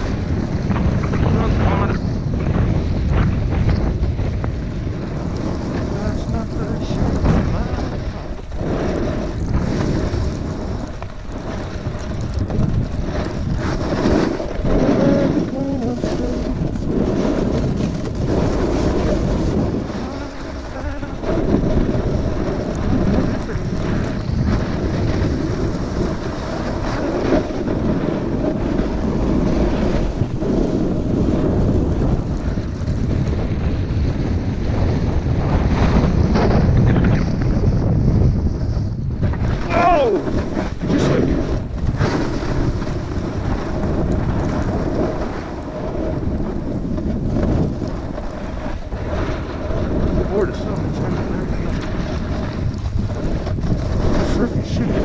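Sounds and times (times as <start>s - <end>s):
wind rushing over microphone: 0.0s - 55.0s
hiss of skiing through snow: 13.0s - 31.7s.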